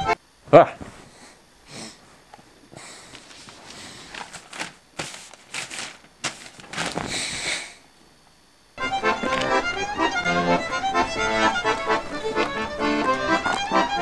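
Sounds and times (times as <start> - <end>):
newspaper rustling: 3.1 - 7.4.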